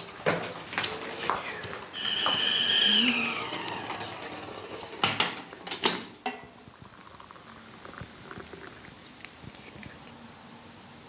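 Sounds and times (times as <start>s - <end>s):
steam hissing and water boiling: 0.0s - 11.0s
kettle whistle: 1.9s - 4.0s
water pouring into glass cup: 6.3s - 9.4s.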